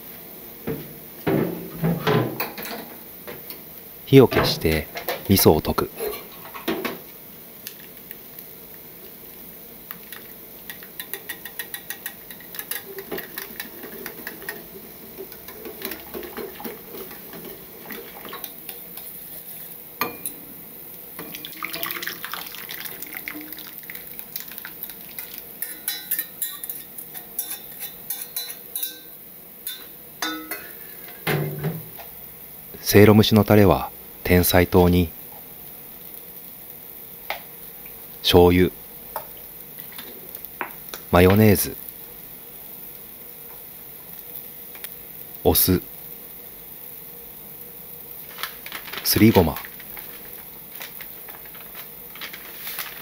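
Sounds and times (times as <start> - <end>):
utensil clinking against pot: 10.7 - 17.6, 25.2 - 31.2
soup pouring into bowl: 21.2 - 25.5.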